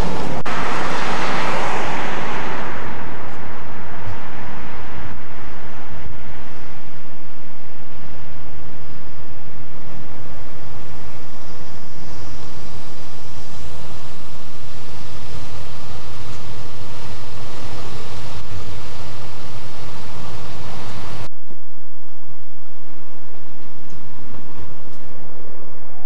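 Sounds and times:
truck engine idling: 0.0s - 5.6s.

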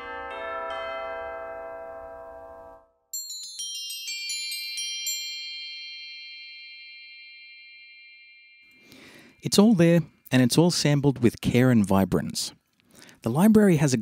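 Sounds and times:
tubular bells ringing: 0.0s - 9.8s.

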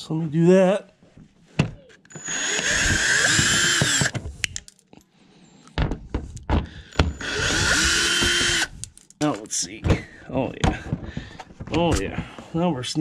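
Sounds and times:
power drill motor whine: 2.1s - 4.2s, 7.0s - 8.7s.

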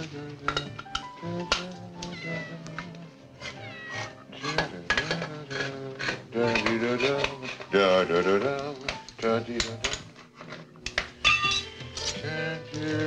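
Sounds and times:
soft background music: 0.0s - 13.0s
cat meowing: 2.0s - 4.5s
utensil scraping tin can: 3.4s - 12.3s.

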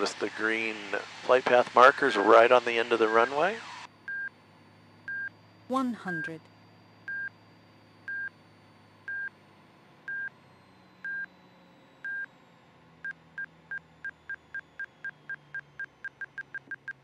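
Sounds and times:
short high warning beeps: 10.1s - 10.3s, 10.9s - 11.3s, 12.0s - 12.3s.

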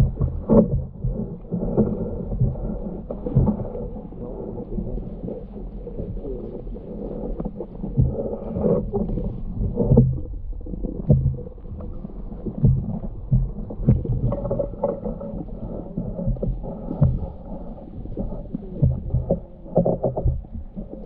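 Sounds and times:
soft underwater thumps and knocks: 0.0s - 21.0s
underwater water rumble: 0.0s - 21.0s.

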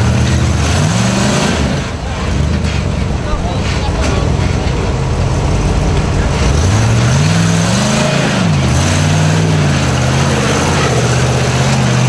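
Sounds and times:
off-road vehicle engine revving: 0.0s - 12.0s.

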